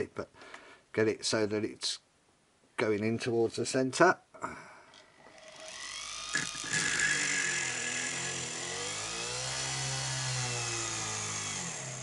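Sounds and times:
rotary tool whining: 0:05.0 - 0:12.0.

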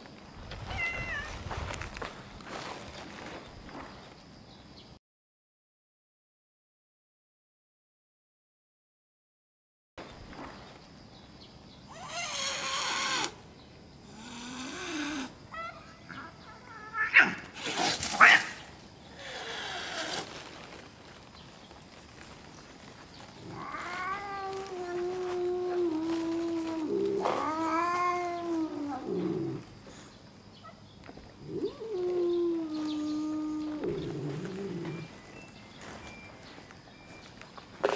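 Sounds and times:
cat yowling: 0:00.7 - 0:01.3, 0:14.4 - 0:17.5, 0:23.4 - 0:29.6.

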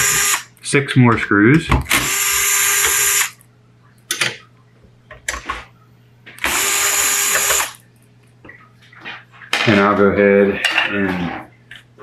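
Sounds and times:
cordless drill motor whine: 0:00.0 - 0:00.4, 0:01.9 - 0:03.4, 0:06.4 - 0:07.8.

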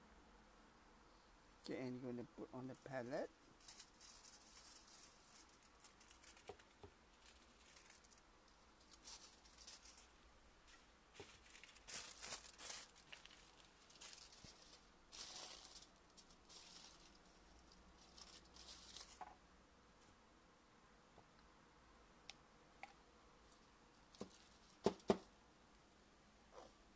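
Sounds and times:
aluminium foil crinkling: 0:02.8 - 0:19.3.

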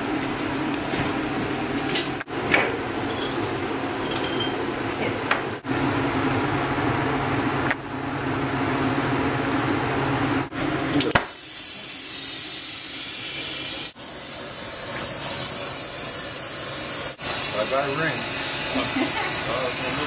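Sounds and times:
gas torch hissing: 0:11.1 - 0:20.0.

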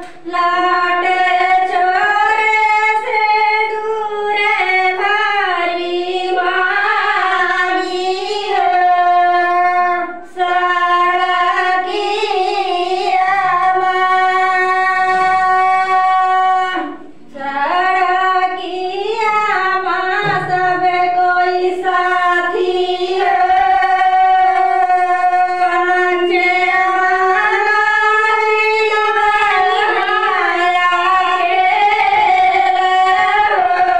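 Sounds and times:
high solo voice singing: 0:19.6 - 0:33.9.

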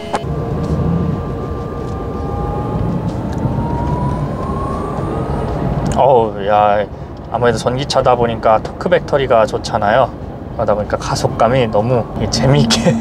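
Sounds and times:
low road rumble: 0:00.0 - 0:13.0
electric motor whine rising: 0:00.2 - 0:05.9.

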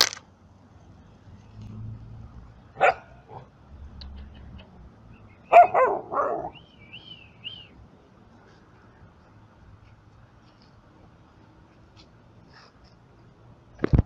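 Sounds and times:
dogs barking: 0:02.8 - 0:03.5, 0:05.5 - 0:06.6.

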